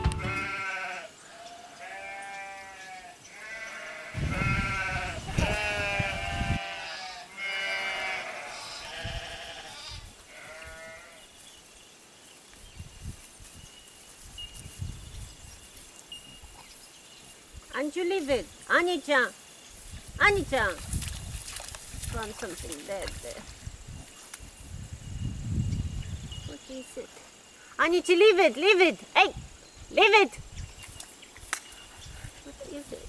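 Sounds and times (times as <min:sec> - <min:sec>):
sheep bleating: 0:00.0 - 0:11.2.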